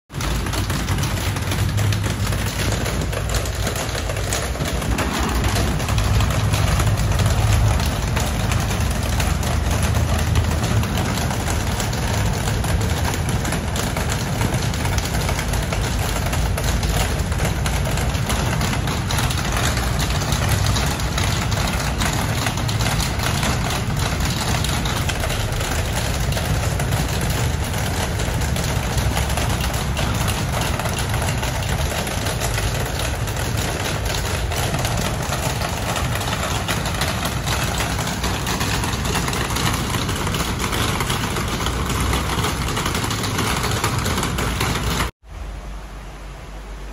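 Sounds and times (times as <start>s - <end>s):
low engine rumble: 0.1s - 46.9s.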